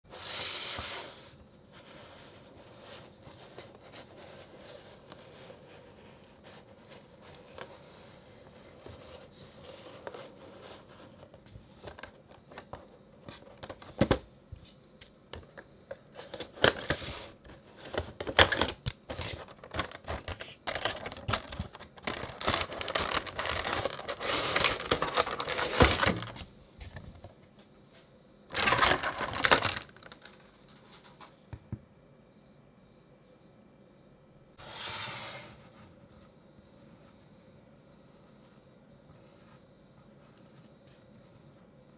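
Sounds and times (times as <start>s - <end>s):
plastic crinkling and scraping: 0.1s - 14.0s, 15.4s - 27.3s, 28.5s - 31.1s
cardboard rustling: 0.2s - 14.2s, 16.1s - 27.3s, 28.5s - 30.4s.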